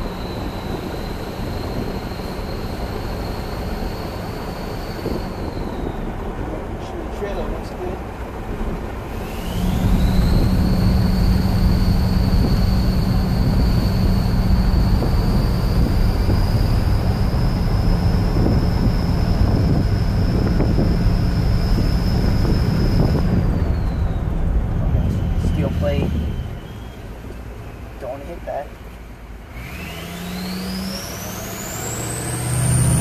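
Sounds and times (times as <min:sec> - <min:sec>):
diesel engine drone: 0:00.0 - 0:33.0
turbo whistle: 0:09.2 - 0:27.2.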